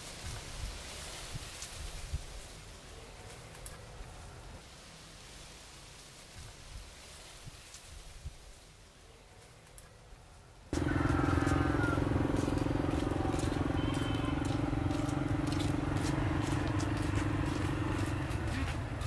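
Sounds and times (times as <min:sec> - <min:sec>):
small engine running: 0:10.8 - 0:19.0.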